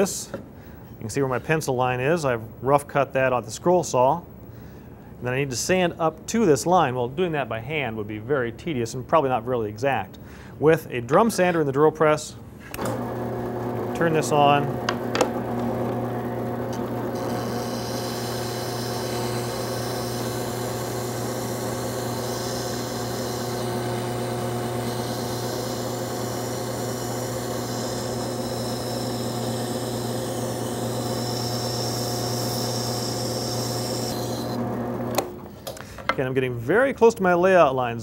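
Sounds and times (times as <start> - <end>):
drill press motor hum: 12.7 - 35.5
wood sanding on spinning drum: 17.2 - 34.6.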